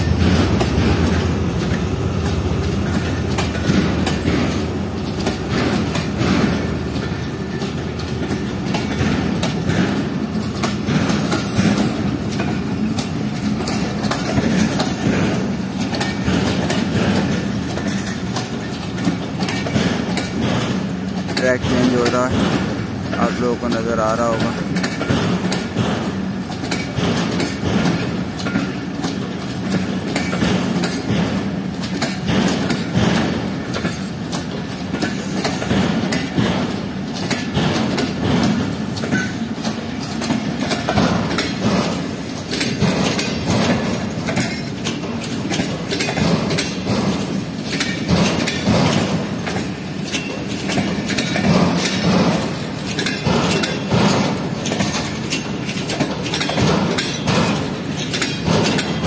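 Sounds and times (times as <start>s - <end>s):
train wheels clattering over rail joints: 0.0s - 59.0s.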